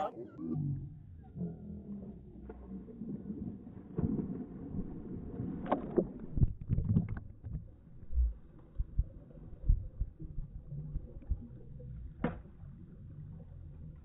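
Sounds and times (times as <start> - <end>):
low thumps: 6.3 - 12.6.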